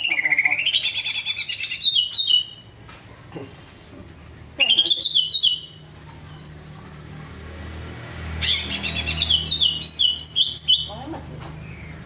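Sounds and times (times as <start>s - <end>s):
bird singing trilled phrases: 0.0s - 2.7s, 4.6s - 6.4s, 8.4s - 11.0s.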